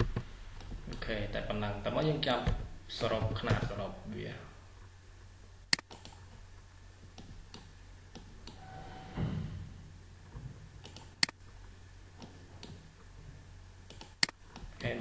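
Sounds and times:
faint low hum: 0.0 - 15.0
mouse buttons clicking: 5.7 - 6.2, 10.8 - 11.4, 13.9 - 14.8.

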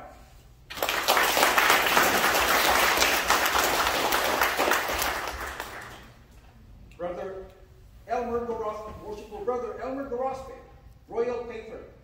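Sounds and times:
audience applauding: 0.7 - 6.2.

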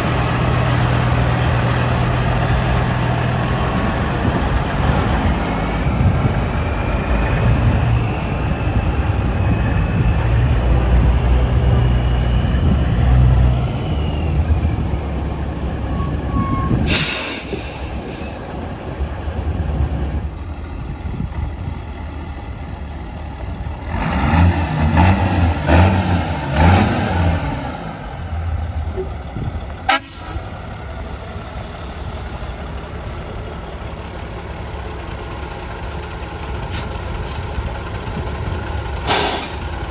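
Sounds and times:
diesel truck engines running: 0.0 - 39.9
air hiss: 16.8 - 18.4, 39.0 - 39.6
engine revving: 23.7 - 28.7.

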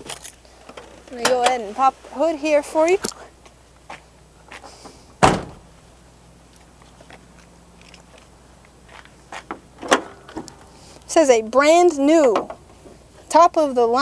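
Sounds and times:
van door shutting: 4.8 - 5.7, 9.5 - 10.7.

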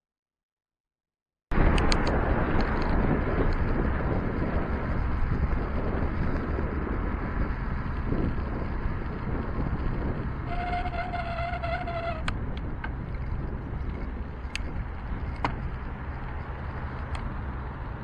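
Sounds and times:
tyre road rumble: 1.5 - 18.0
wind on microphone: 1.5 - 18.0
sharp clicks: 1.7 - 2.9
bicycle brake squeal: 10.4 - 12.3.

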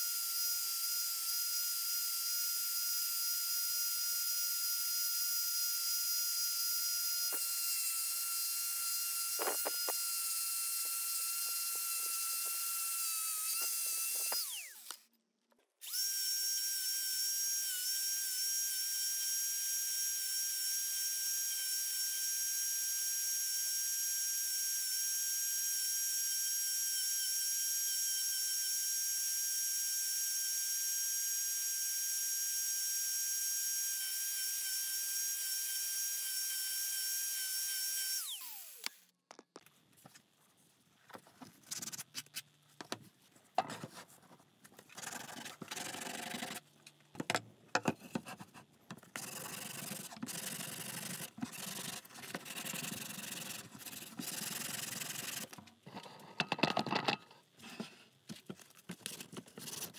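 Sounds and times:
angle grinder whine: 4.9 - 15.0, 34.0 - 39.0
wood sanding against disc: 49.2 - 55.6.

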